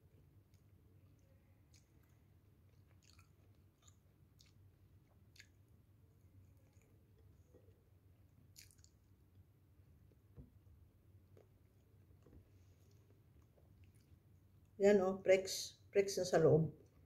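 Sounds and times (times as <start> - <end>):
low steady hum: 0.0 - 17.0
mouth clicks and lip smacks: 1.6 - 5.6, 8.5 - 9.1.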